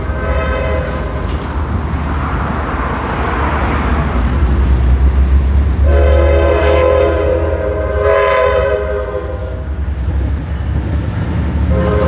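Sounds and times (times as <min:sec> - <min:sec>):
train horn blast: 0:00.0 - 0:01.2, 0:05.8 - 0:09.7, 0:11.7 - 0:12.0
train passing: 0:00.0 - 0:12.0.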